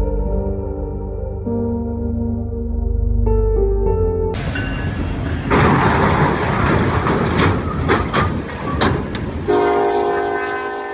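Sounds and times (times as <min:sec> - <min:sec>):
train crash grinding rush: 0:04.4 - 0:10.2
locomotive horn: 0:09.4 - 0:10.9.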